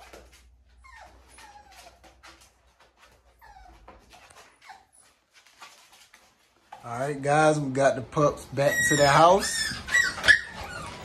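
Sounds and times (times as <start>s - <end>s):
puppy whining: 0.0s - 5.6s, 8.5s - 11.0s.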